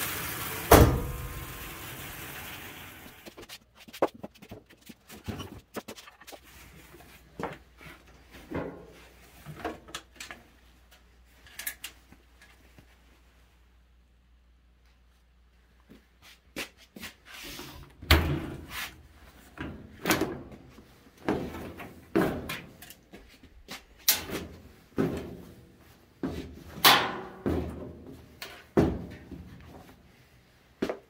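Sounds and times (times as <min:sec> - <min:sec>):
wet clothes thudding in dryer drum: 0:00.6 - 0:01.6.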